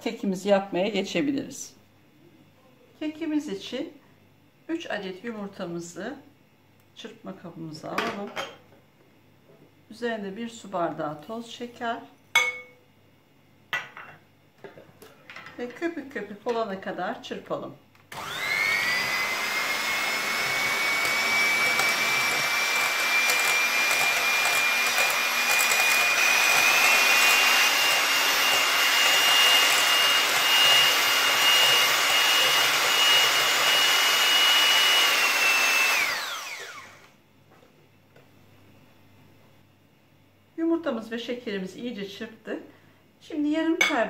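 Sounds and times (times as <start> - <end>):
electric hand mixer whine: 18.1 - 37.2
beaters whisking in glass bowl: 20.3 - 33.4.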